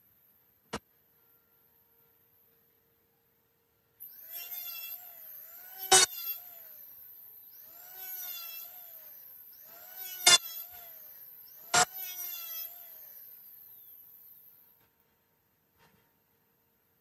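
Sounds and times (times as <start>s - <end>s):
electric hand planer whine: 4.0s - 14.8s.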